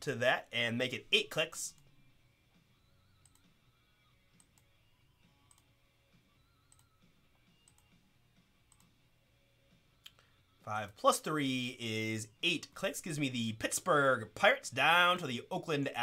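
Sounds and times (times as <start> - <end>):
faint mouse clicks: 3.2 - 3.5, 5.4 - 5.7, 6.7 - 8.0, 8.7 - 9.0, 10.0 - 10.3.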